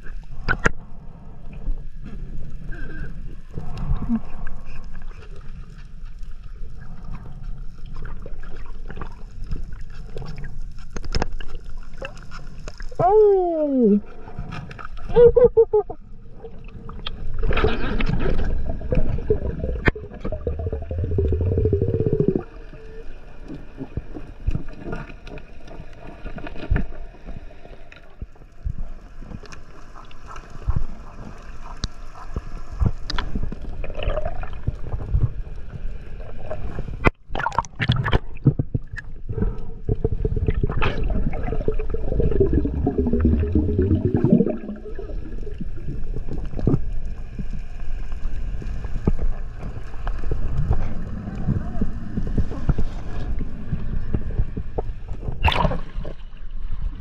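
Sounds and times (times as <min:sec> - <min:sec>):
muffled underwater rush: 0:13.8 - 0:57.0
gurgling air bubbles: 0:16.4 - 0:22.6, 0:37.3 - 0:46.8.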